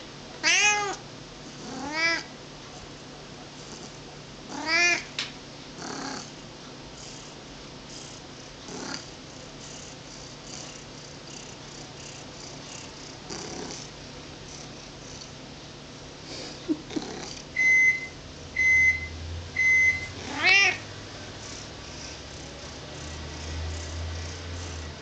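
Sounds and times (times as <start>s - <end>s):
cat meowing: 0.4s - 1.0s, 1.7s - 2.3s, 4.5s - 5.1s, 20.2s - 20.8s.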